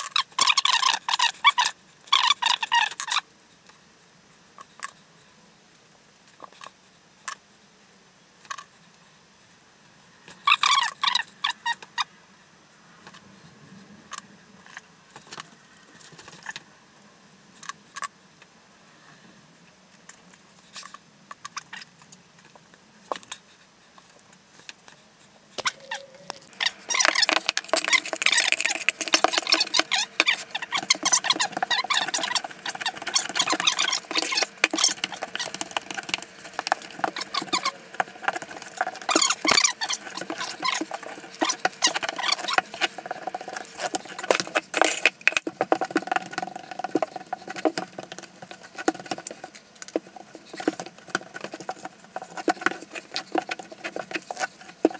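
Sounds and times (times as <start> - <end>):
grout float scraping on tile: 26.5 - 54.9.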